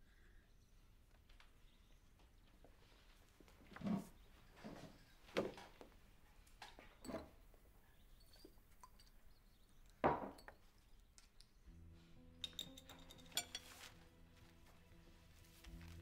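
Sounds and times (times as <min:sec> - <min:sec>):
cutlery and plates clinking: 0:07.0 - 0:07.4, 0:12.4 - 0:14.0.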